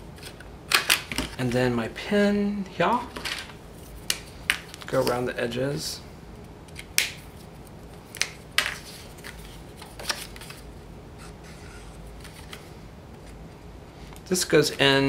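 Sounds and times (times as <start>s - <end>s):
faint steady hum: 0.0s - 15.0s
paper rustling: 8.6s - 13.4s.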